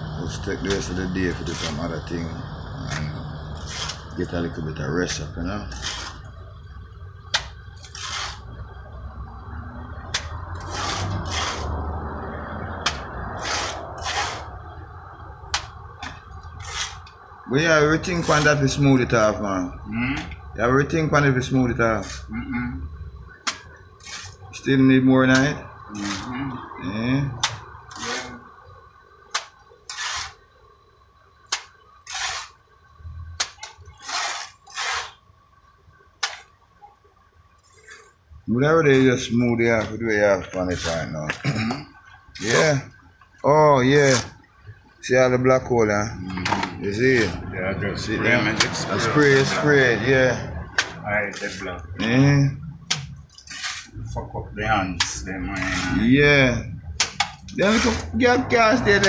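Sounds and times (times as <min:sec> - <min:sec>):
trowel scraping render: 0:00.6 - 0:02.3, 0:02.9 - 0:06.3, 0:07.3 - 0:08.5, 0:10.1 - 0:11.8, 0:12.8 - 0:14.5, 0:16.6 - 0:17.1, 0:17.9 - 0:18.8, 0:21.9 - 0:22.3, 0:23.4 - 0:24.6, 0:25.3 - 0:26.4, 0:27.4 - 0:28.4, 0:29.3 - 0:30.4, 0:31.5 - 0:32.6, 0:33.4 - 0:35.2, 0:37.6 - 0:38.2, 0:38.9 - 0:41.7, 0:43.9 - 0:44.4, 0:46.4 - 0:47.4, 0:48.2 - 0:52.3, 0:52.9 - 0:59.0.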